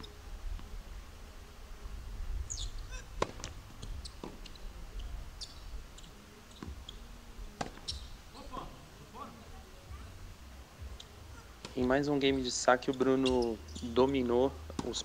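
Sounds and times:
tennis ball hit and bouncing: 3.2 - 3.6, 7.6 - 8.0.

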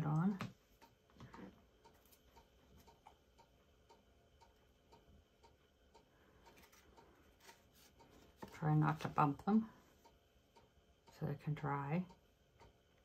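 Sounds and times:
clock ticking: 0.0 - 13.0.

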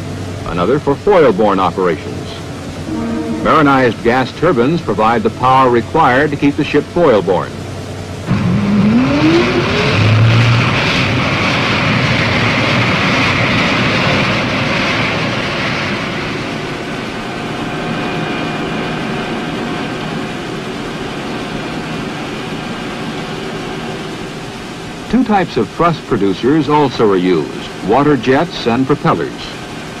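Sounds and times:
faint high whining tones: 0.0 - 10.3
gas turbine running: 0.0 - 30.0
rising tone: 2.8 - 4.1, 8.3 - 11.2.

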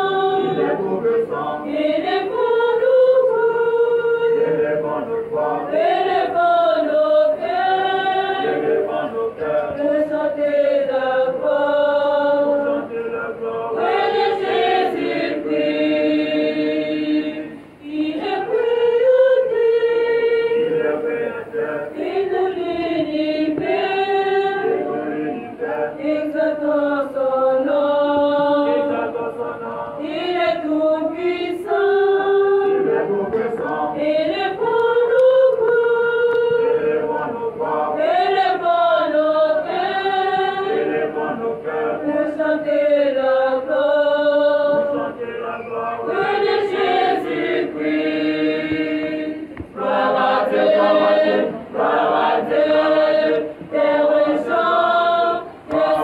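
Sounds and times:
choir singing held notes: 0.0 - 56.0.

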